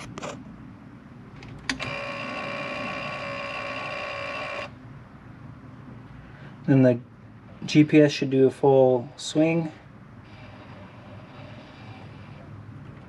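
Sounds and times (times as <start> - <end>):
electronic warning buzzer: 1.8 - 4.7, 10.2 - 12.5.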